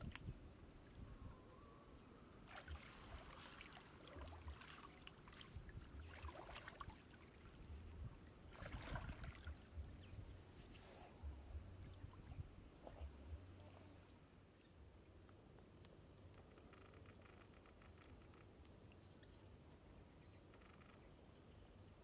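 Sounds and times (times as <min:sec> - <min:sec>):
wading through shallow water: 0:02.4 - 0:14.1.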